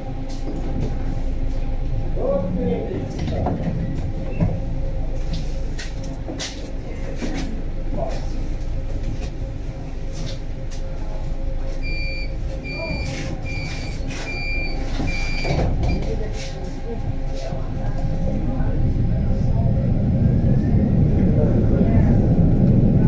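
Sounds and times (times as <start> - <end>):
tram rumble and hum: 0.0 - 23.0
high electronic beeps: 11.8 - 15.6.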